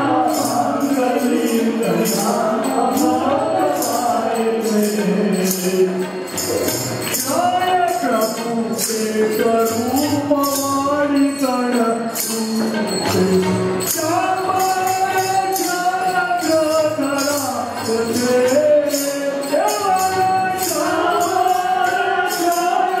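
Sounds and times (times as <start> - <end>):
jingling percussion beat: 0.0 - 23.0.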